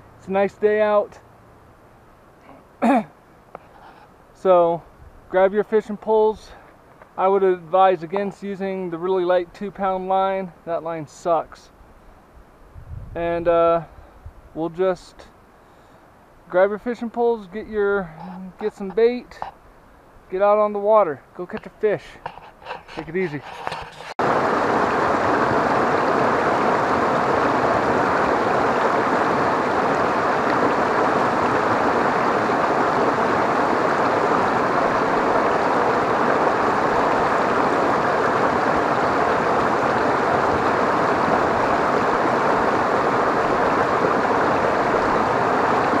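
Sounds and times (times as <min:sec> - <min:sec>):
water rushing over rocks: 0:23.0 - 0:46.0.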